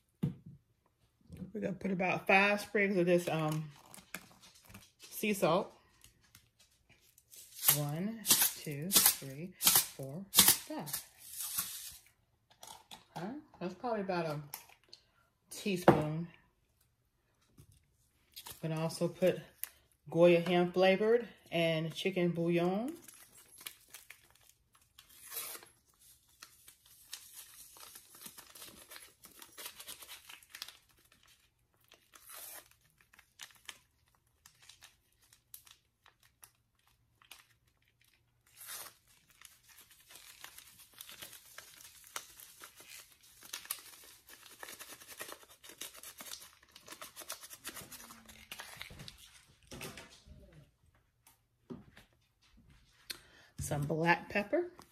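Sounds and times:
packets ripping open: 0:07.2 - 0:12.8, 0:23.0 - 0:49.4.

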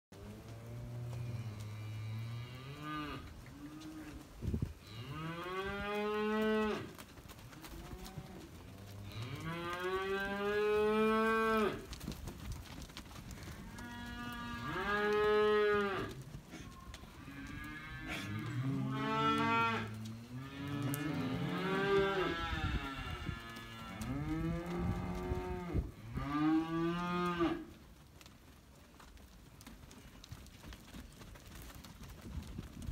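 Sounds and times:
cattle mooing: 0:00.6 - 0:04.2, 0:13.7 - 0:27.6.

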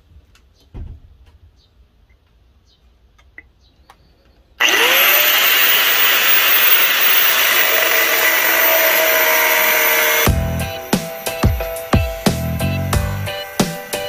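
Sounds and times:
angle grinder running: 0:04.6 - 0:14.0
grinder disc cutting steel: 0:04.6 - 0:14.0.

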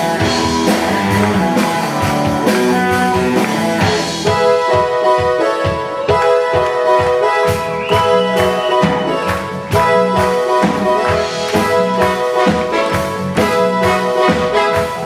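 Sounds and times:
drum beat: 0:00.0 - 0:15.0
electric guitar: 0:00.0 - 0:15.0
keytar chords: 0:00.0 - 0:15.0.

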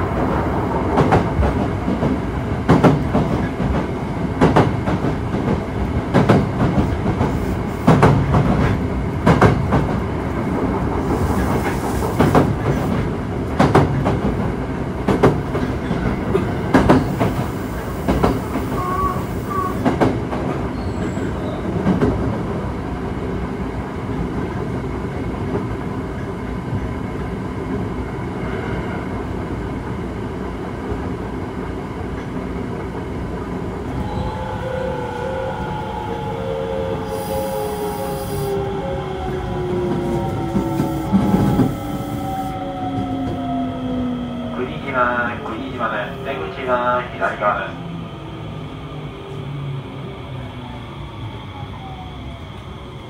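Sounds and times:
train running noise: 0:00.0 - 0:53.0.

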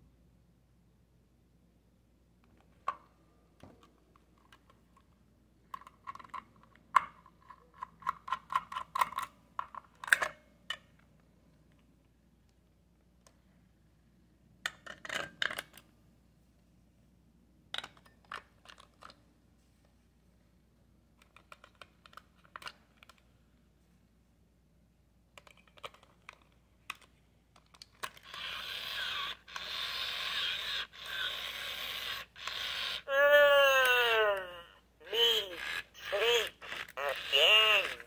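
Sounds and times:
toy mechanism whirring: 0:27.8 - 0:38.0
electronic toy voice: 0:28.3 - 0:38.0.

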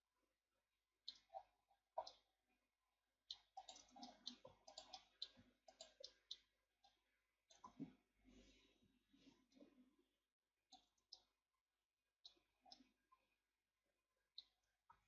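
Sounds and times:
mouse and keyboard clicking: 0:03.3 - 0:06.5.

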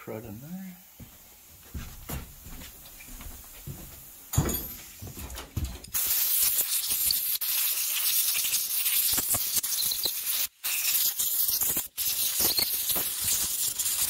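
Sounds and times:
compressed air blow gun hissing: 0:05.9 - 0:14.0.

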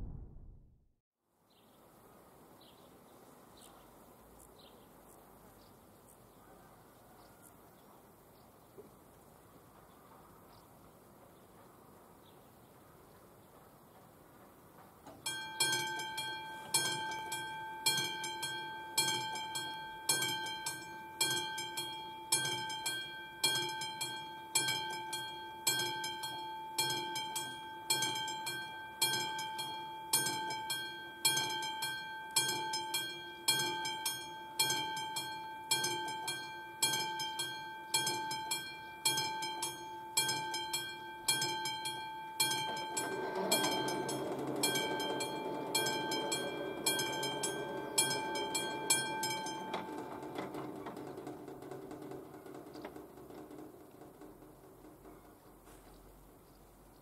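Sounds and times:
low rumble: 0:00.0 - 0:00.9
level crossing bell ringing: 0:15.3 - 0:51.4.

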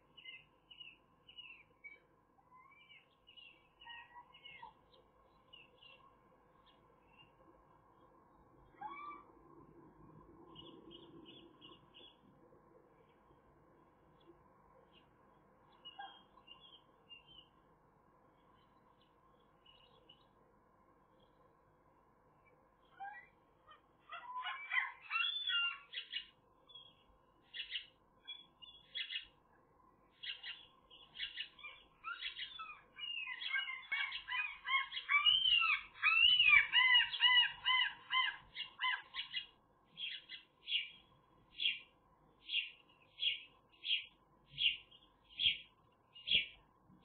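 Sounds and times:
sparrows chirping: 0:00.1 - 0:07.4, 0:10.5 - 0:12.3, 0:15.7 - 0:17.5, 0:22.4 - 0:29.4, 0:30.1 - 0:46.6.

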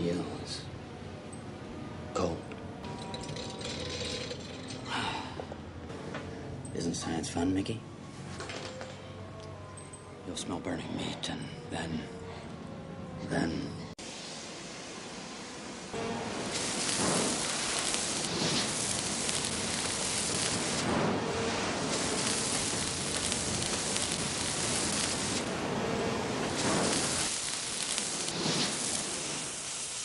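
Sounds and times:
blowtorch flame hissing: 0:14.0 - 0:30.0
meat sizzling: 0:16.4 - 0:20.8, 0:21.7 - 0:25.5, 0:26.4 - 0:30.0.

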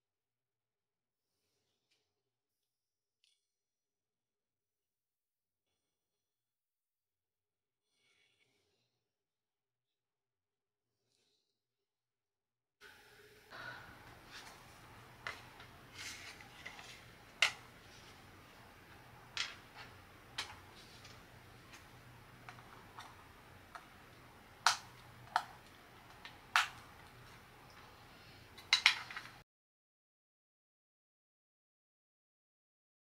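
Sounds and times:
wooden pieces clicking and tapping: 0:14.1 - 0:29.4.

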